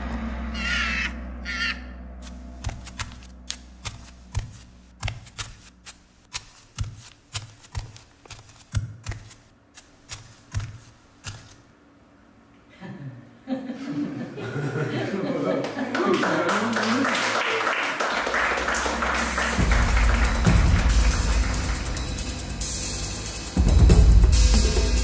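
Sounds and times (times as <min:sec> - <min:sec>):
short high cry: 0:00.5 - 0:02.0
footsteps on hard floor: 0:02.2 - 0:05.7.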